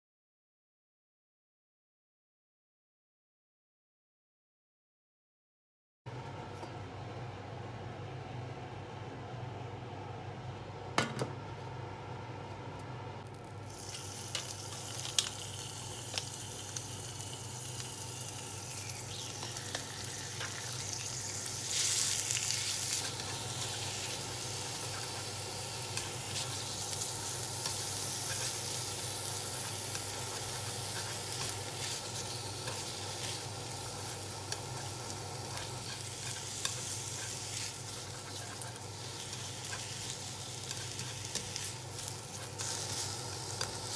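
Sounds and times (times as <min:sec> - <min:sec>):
meat sizzling in a frying pan: 0:13.4 - 0:43.9.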